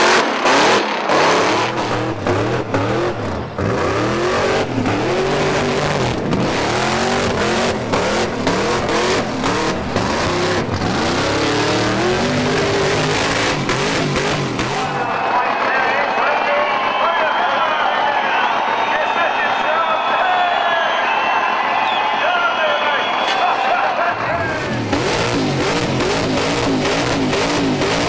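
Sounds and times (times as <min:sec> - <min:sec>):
car engine revving hard: 0:00.0 - 0:15.1, 0:24.3 - 0:28.0.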